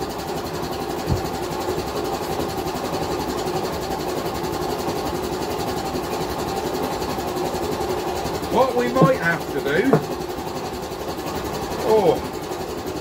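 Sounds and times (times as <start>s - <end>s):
workshop machine droning: 0.0s - 13.0s.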